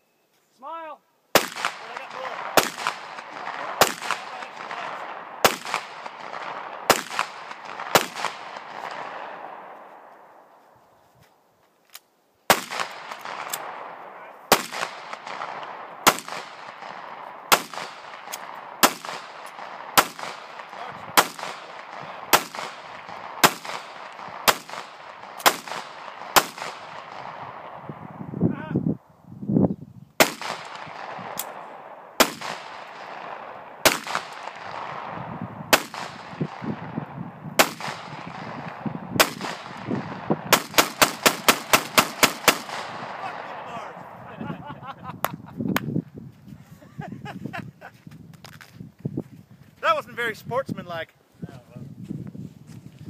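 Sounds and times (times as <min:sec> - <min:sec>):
pistol shots echoing: 0:01.4 - 0:09.9, 0:12.5 - 0:28.0, 0:30.2 - 0:44.2.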